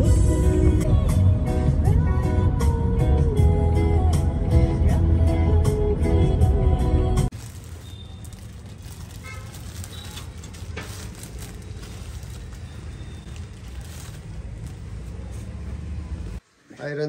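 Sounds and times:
plastic covers crinkling: 0:07.3 - 0:15.8.

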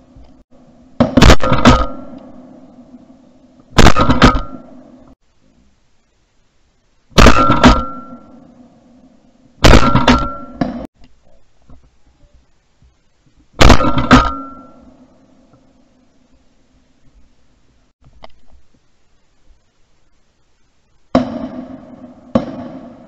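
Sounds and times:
shotgun shots: 0:01.0 - 0:02.2, 0:03.7 - 0:04.8, 0:07.2 - 0:08.3, 0:09.6 - 0:10.9, 0:13.6 - 0:14.8, 0:21.1 - 0:23.0.

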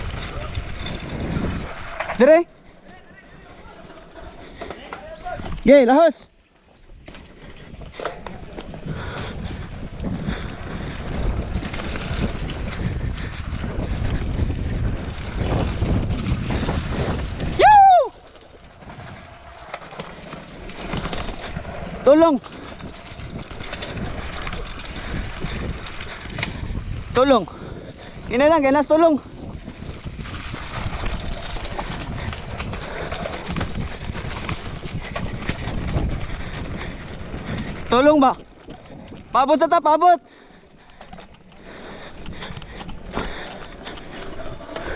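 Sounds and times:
wind buffeting microphone: 0:00.0 - 0:05.7, 0:06.8 - 0:39.5, 0:40.2 - 0:44.9
bike rattles and clicks: 0:00.0 - 0:44.9
bike rumbling on dirt trail: 0:00.0 - 0:44.9.

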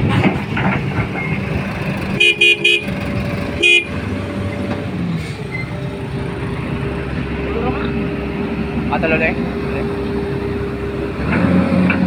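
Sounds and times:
heavy machinery engines running: 0:00.0 - 0:12.0
vehicle horn toots: 0:02.2 - 0:03.0, 0:03.6 - 0:04.0.

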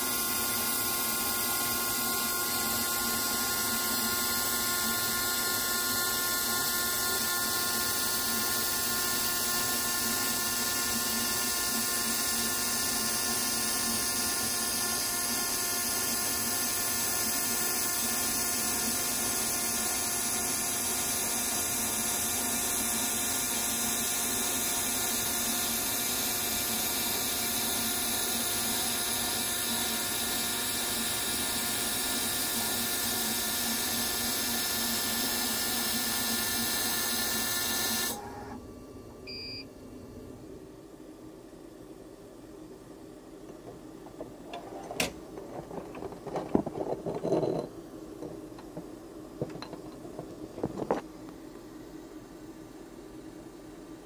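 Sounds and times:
laser engraver hiss: 0:00.0 - 0:38.4
high drill-like whine: 0:00.0 - 0:38.5.

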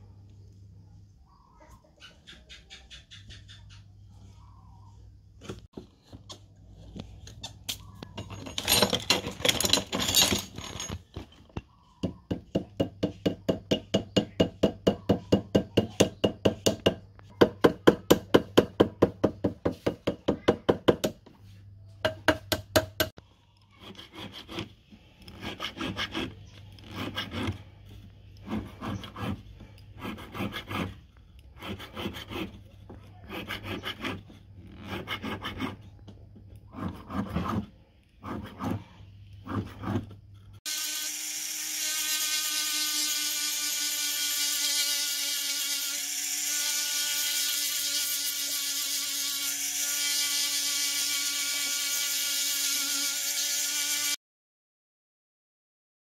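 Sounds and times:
hand file rasping on metal: 0:23.7 - 0:36.0, 0:36.6 - 0:40.9.

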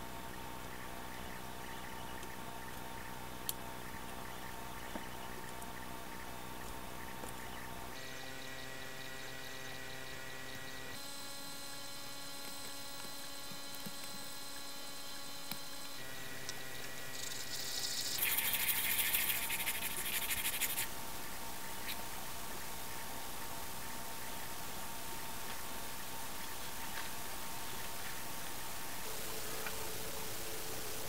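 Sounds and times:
steady droning tones: 0:00.0 - 0:18.8, 0:19.4 - 0:31.0
plastic scraping on sandpaper: 0:18.2 - 0:20.9.

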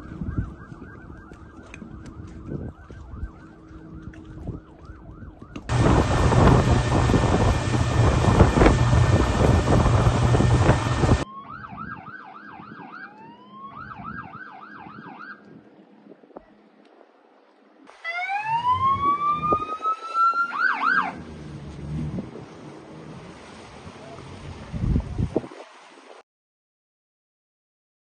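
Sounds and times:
police siren yelping: 0:00.1 - 0:15.4, 0:18.0 - 0:21.2
boat engine at speed: 0:05.7 - 0:11.2, 0:18.4 - 0:25.3
wind rushing: 0:05.7 - 0:11.2.

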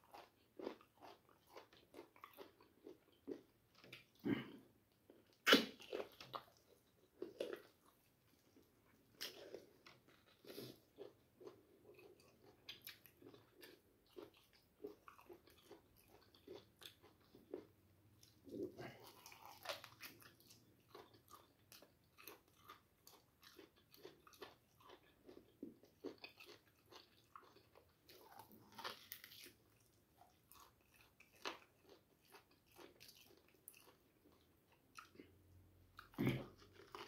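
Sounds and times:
person chewing food: 0:00.0 - 0:37.0.

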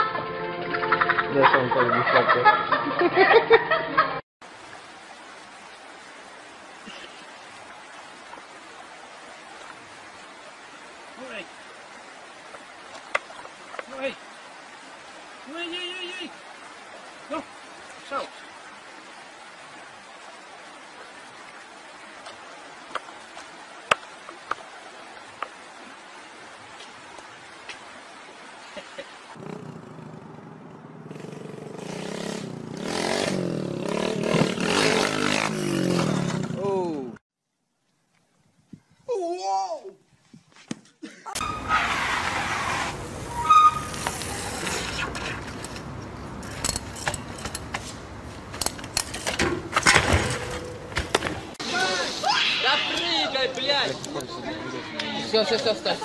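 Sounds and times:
outdoor background hiss: 0:01.0 - 0:56.0
bicycle squeal: 0:41.4 - 0:45.4.

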